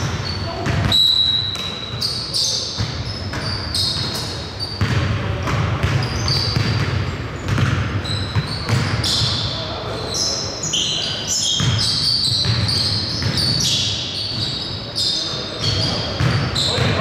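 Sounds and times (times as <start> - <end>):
basketball bouncing: 0.0 - 2.1, 2.8 - 9.4, 11.6 - 14.5, 15.8 - 17.0
sneakers squeaking on court: 0.0 - 17.0
players' voices: 14.5 - 17.0.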